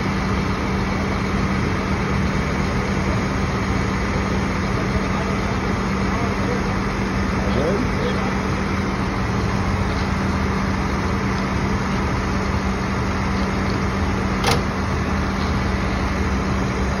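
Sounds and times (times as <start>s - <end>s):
tow truck engine humming: 0.0s - 17.0s
sharp click: 14.4s - 14.7s.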